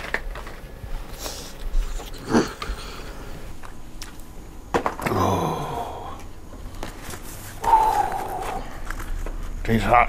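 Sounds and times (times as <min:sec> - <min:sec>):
short falling vocal sound: 0:05.0 - 0:06.2, 0:07.6 - 0:08.7.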